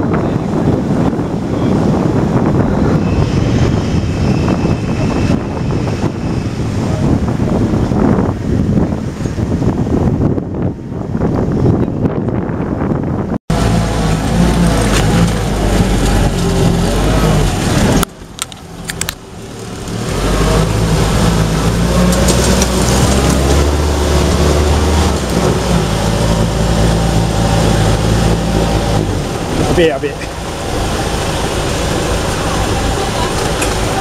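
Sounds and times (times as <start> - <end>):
jeep engine running: 0.0 - 34.0.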